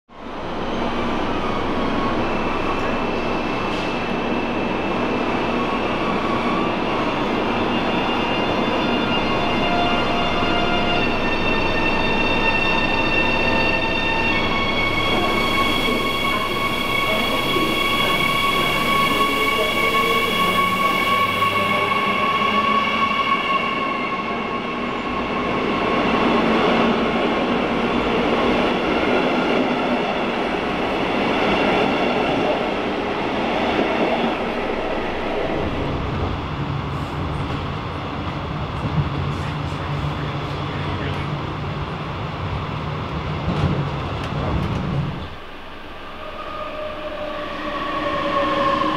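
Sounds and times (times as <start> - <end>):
electric train pulling into platform: 0.2 - 48.9
rumble of train wheels: 24.3 - 48.9
low hum inside train coach: 32.3 - 48.9.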